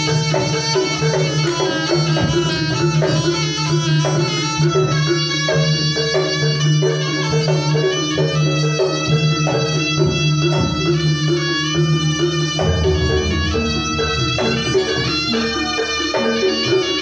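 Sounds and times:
drums beating steady rhythm: 0.0 - 17.0
reedy shawm melody: 0.0 - 17.0
ringing metallophones: 0.0 - 17.0
steady low tone: 12.6 - 15.5.

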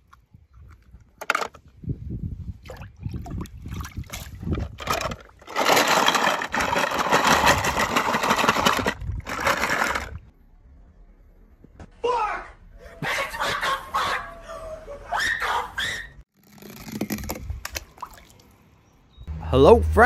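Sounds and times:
metal toy cars rattling: 4.7 - 10.2.

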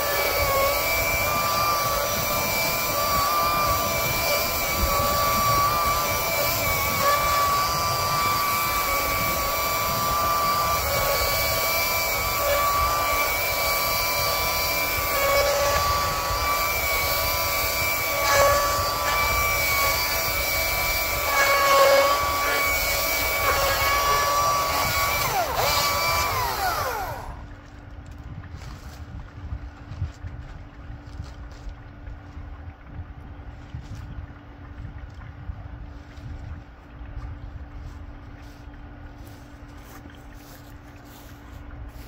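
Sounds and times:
power tool whining: 0.0 - 27.5.

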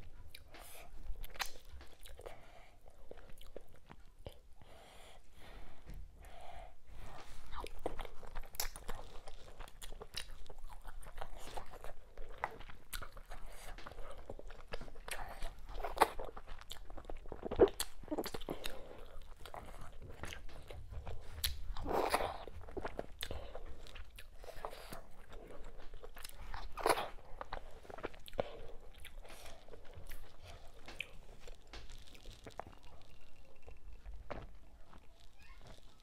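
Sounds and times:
wet chewing: 0.0 - 4.6, 7.1 - 36.0
lip smacks: 0.3 - 4.5.

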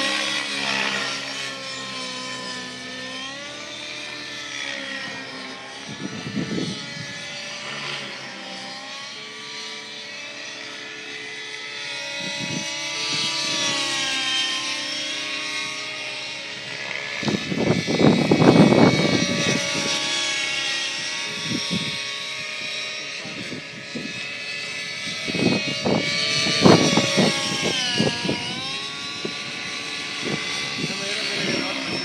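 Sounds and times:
model helicopter whine: 0.0 - 32.0
wind buffeting microphone: 5.8 - 7.4, 12.1 - 13.8, 16.6 - 20.0, 21.2 - 32.0.

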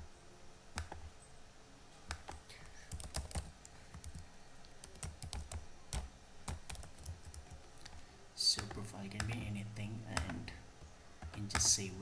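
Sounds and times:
computer keyboard typing: 0.8 - 1.1, 2.1 - 4.2, 4.8 - 10.6, 11.2 - 12.0.

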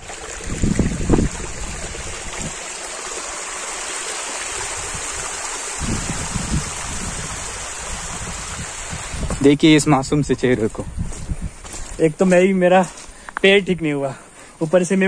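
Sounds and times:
water flowing: 0.0 - 13.1.

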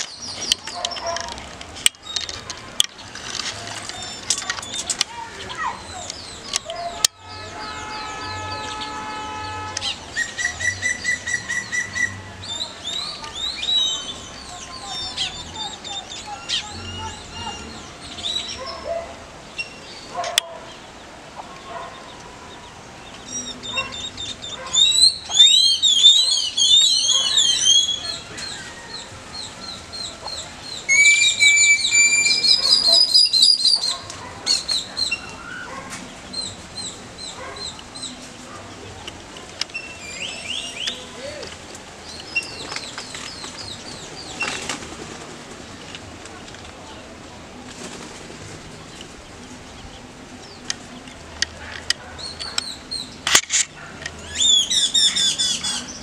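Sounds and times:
songbirds chirping and singing: 0.0 - 56.0.

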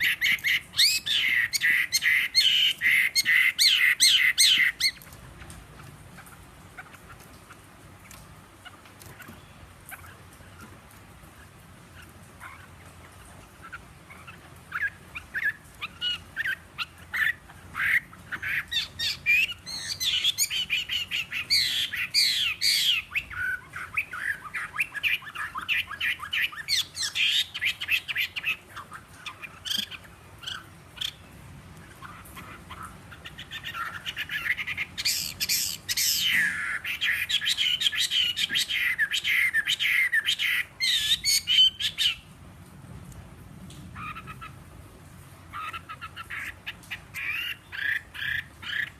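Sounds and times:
bird singing: 0.0 - 5.1, 13.6 - 42.3, 45.6 - 48.9.

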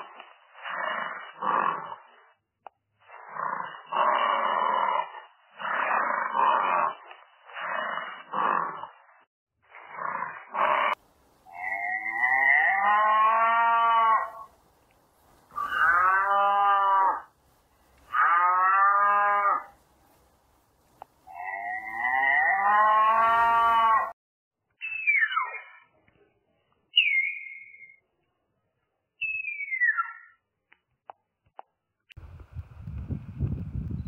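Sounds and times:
cows mooing: 11.5 - 14.5, 15.6 - 17.3, 18.1 - 19.7, 21.3 - 24.1.

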